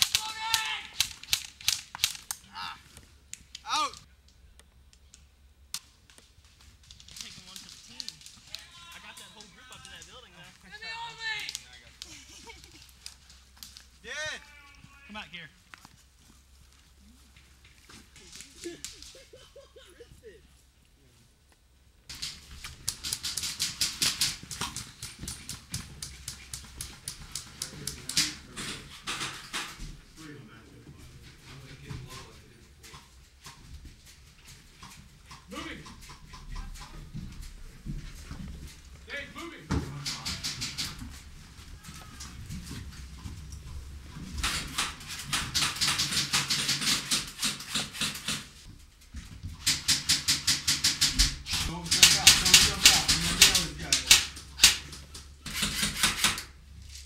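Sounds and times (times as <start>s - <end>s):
airsoft guns firing: 0.0s - 2.4s, 22.1s - 29.8s, 39.9s - 41.2s, 44.3s - 48.6s, 49.6s - 56.5s
sharp clicks and knocks: 22.1s - 30.0s, 39.7s - 41.4s, 42.1s - 56.6s.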